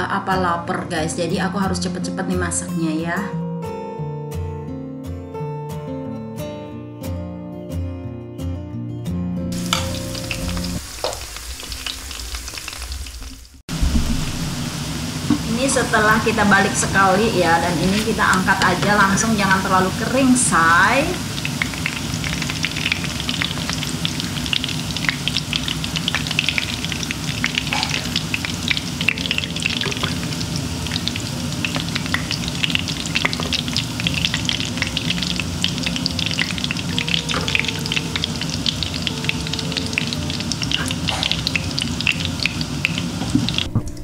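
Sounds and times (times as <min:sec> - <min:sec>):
fritters sizzling in hot oil: 0:09.5 - 0:43.7.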